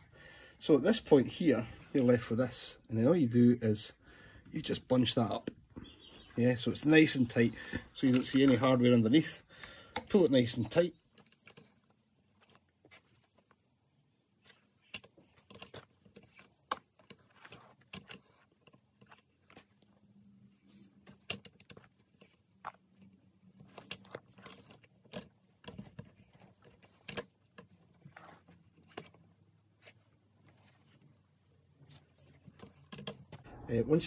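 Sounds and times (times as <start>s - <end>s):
cord rustling: 4.3s - 34.0s
cord clicking and tapping on metal: 6.8s - 13.7s, 14.5s - 33.5s.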